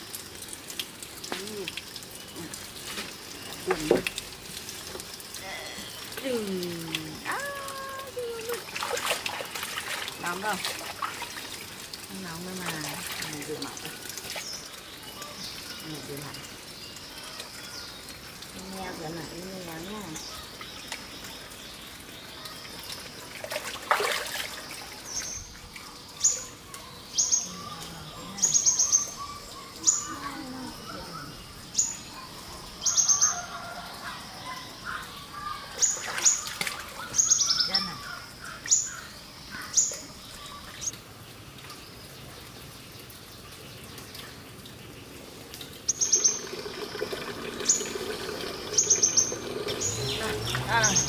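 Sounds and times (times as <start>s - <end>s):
water trickling from pipe: 0.0s - 51.0s
birds chirping: 1.3s - 4.2s, 12.1s - 45.2s, 45.8s - 51.0s
short splash: 8.7s - 11.4s, 23.4s - 24.9s.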